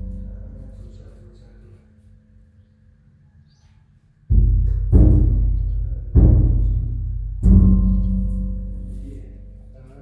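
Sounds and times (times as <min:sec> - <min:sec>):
gong ringing: 0:00.0 - 0:01.2.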